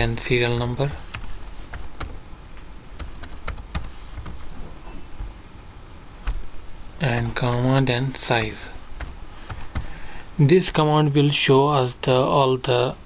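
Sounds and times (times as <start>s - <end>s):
keyboard typing clicks: 6.2s - 7.8s.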